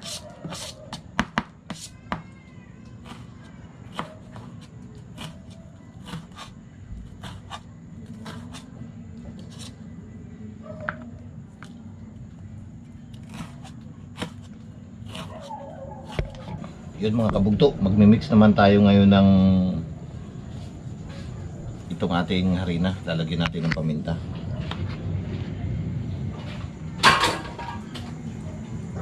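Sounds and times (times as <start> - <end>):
knife chopping on cutting board: 0.0 - 2.2, 3.9 - 4.6, 5.2 - 6.5, 13.2 - 16.6
steady low hum: 3.3 - 29.0.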